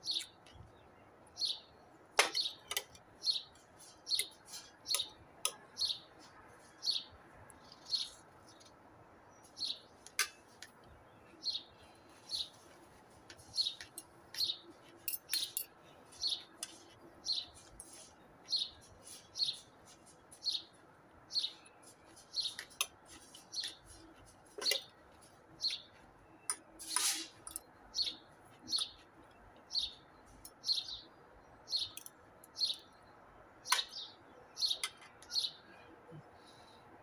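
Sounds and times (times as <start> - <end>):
small bird chirping: 0.0 - 35.7
cutlery clinking on a ceramic plate: 15.0 - 15.8.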